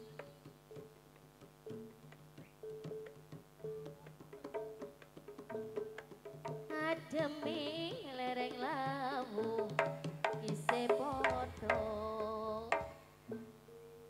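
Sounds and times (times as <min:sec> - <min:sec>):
hand-drum strokes: 0:00.0 - 0:14.0
gamelan melody: 0:13.3 - 0:14.0.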